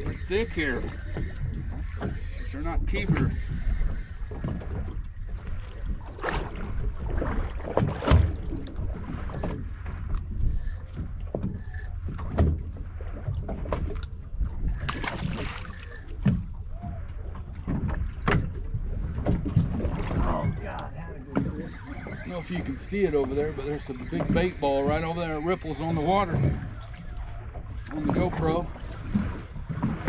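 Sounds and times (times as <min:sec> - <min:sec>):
water slapping boat hull: 0:00.0 - 0:30.0
wind buffeting microphone: 0:00.0 - 0:30.0
splashes and knocks: 0:04.4 - 0:10.2, 0:10.9 - 0:22.1, 0:25.8 - 0:30.0.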